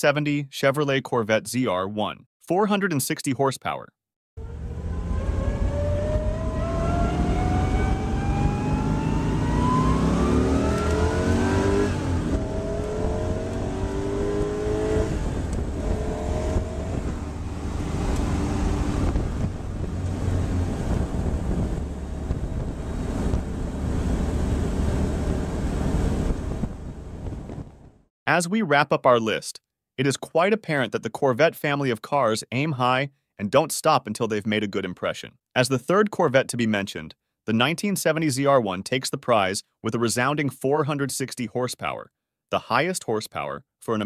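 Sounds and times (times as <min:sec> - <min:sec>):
car engine accelerating: 0:04.4 - 0:27.4.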